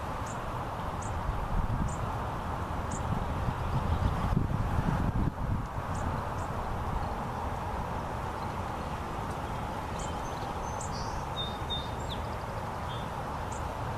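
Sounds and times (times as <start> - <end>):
low background noise: 0.0 - 13.9
faint bird chirps: 10.0 - 13.6.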